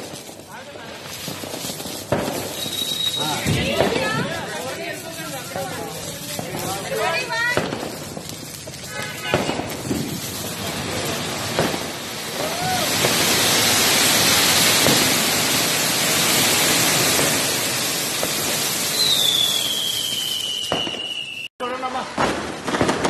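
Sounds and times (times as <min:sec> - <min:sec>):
fountain fireworks hissing: 0:00.0 - 0:23.0
high whistling tone falling: 0:18.9 - 0:21.5.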